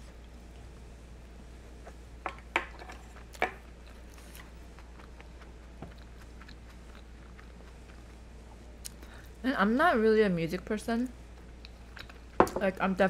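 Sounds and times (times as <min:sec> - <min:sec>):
steady low hum: 0:00.0 - 0:13.0
chewing: 0:02.8 - 0:09.2, 0:11.3 - 0:12.4.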